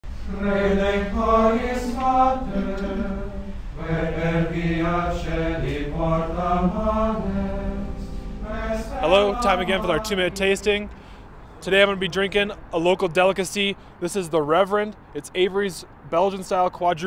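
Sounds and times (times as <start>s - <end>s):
chanted singing: 0.1s - 13.0s.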